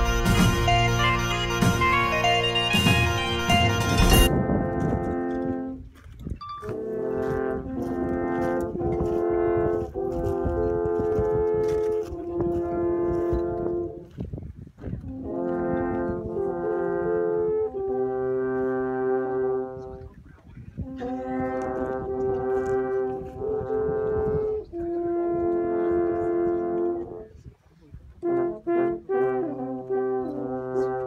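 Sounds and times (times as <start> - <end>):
alphorns playing in harmony: 0.0 - 4.4.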